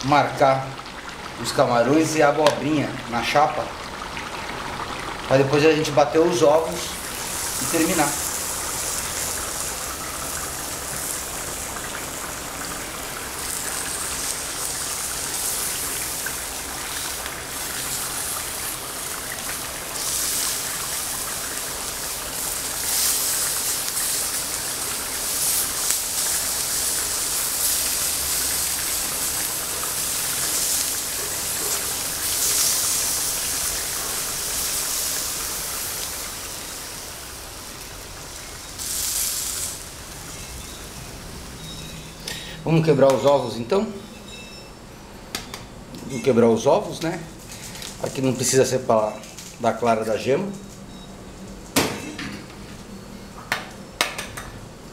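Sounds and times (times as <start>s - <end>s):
food sizzling on a grill pan: 1.4s - 42.4s.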